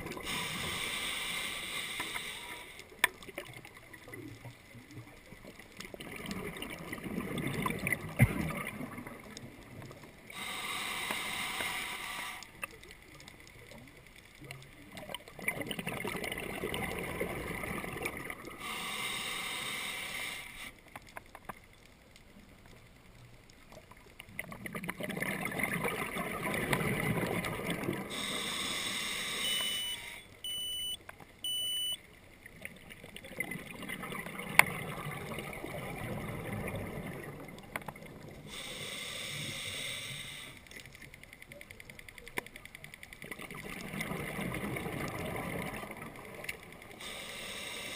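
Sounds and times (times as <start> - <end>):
hissing inhale through regulator: 0.2 - 3.0, 10.3 - 12.6, 18.5 - 20.9, 28.0 - 30.2, 38.4 - 40.8, 46.9 - 47.9
diver exhaling bubbles: 6.0 - 9.3, 15.4 - 18.6, 24.6 - 28.4, 43.4 - 46.4
short electronic beeps: 29.3 - 32.0.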